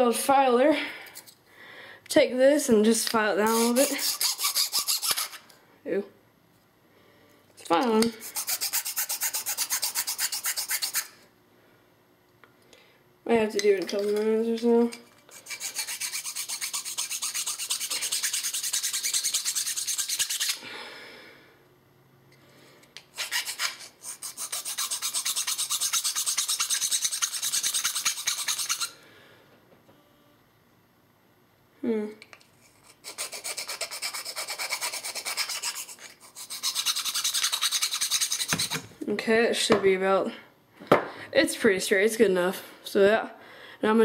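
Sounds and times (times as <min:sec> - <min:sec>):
hand file rasping on plastic: 0:03.4 - 0:05.4, 0:08.2 - 0:11.1, 0:15.3 - 0:20.6, 0:23.2 - 0:28.9, 0:32.8 - 0:38.9.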